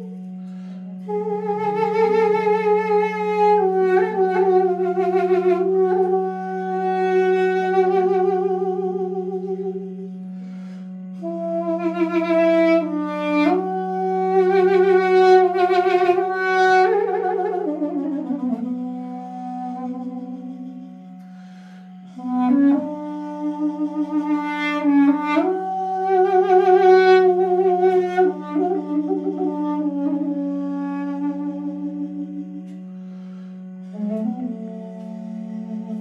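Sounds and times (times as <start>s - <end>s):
duduk melody with vibrato: 0.0s - 36.0s
low drone: 0.0s - 36.0s
player breathing: 0.3s - 1.1s, 10.1s - 11.2s, 21.2s - 22.2s, 32.7s - 33.9s.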